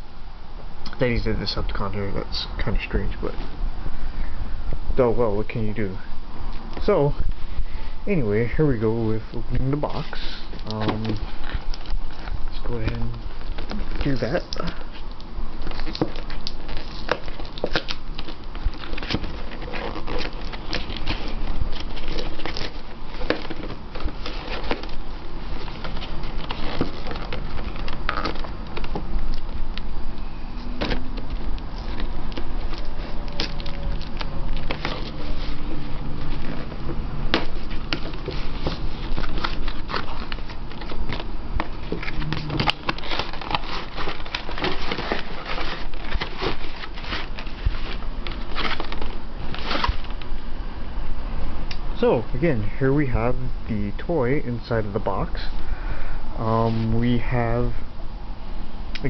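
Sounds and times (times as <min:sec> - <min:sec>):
cardboard and plastic packaging crackling: 0:08.2 - 0:50.5.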